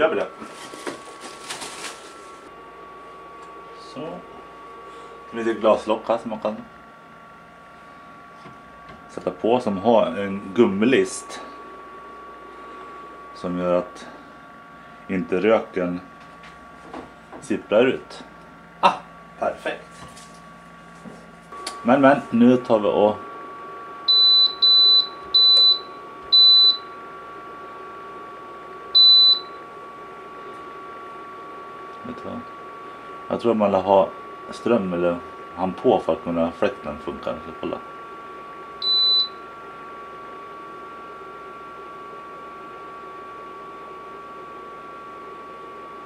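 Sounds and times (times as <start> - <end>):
fan whine: 0.0 - 46.0
thin high whine: 21.0 - 27.0.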